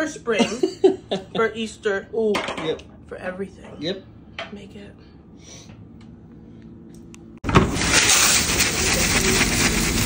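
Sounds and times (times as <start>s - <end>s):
potato flakes pouring into foil pan: 7.6s - 10.0s.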